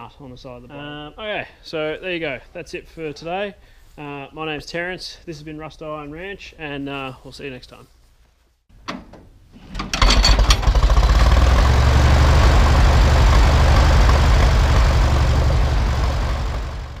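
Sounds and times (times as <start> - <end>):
tractor engine cranked and running: 8.8 - 17.0.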